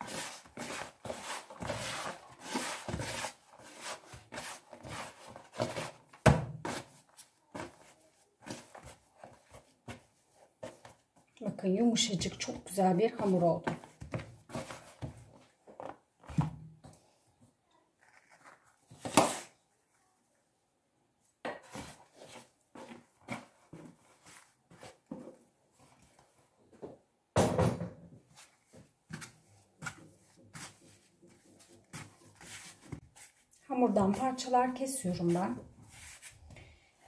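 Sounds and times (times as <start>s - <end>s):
hands kneading dough: 0.0s - 20.2s, 21.2s - 26.8s, 28.3s - 37.0s.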